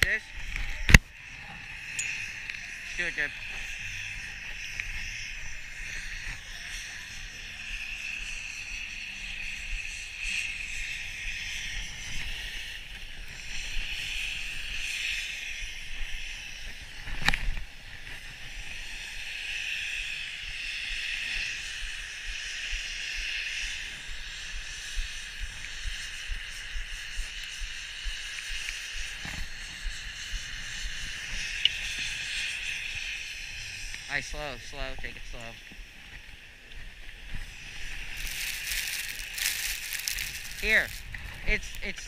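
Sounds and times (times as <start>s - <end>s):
wind rumbling on microphone: 0.0s - 42.0s
skis scraping over snow: 37.4s - 42.0s.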